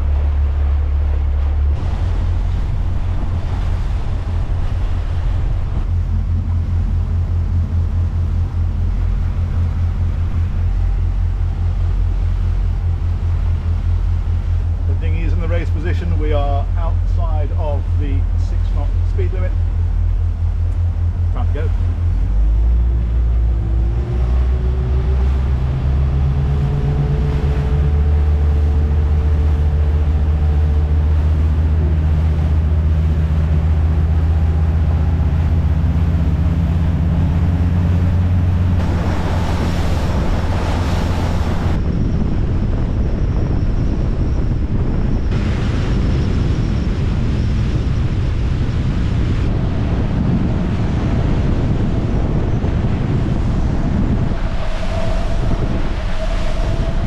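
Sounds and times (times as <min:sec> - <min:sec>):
faint whine: 0:00.0 - 0:57.0
motorboat engine drone: 0:00.0 - 0:57.0
rush of wake: 0:00.0 - 0:57.0
wind buffeting microphone: 0:00.0 - 0:57.0
rush of spray: 0:01.7 - 0:05.9, 0:38.7 - 0:41.8, 0:45.3 - 0:51.4.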